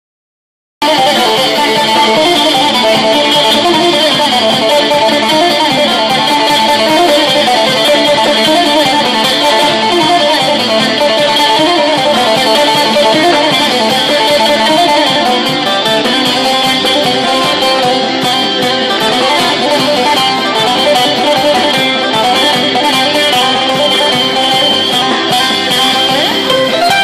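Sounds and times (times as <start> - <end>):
bouzouki picked fast: 0.8 - 27.0.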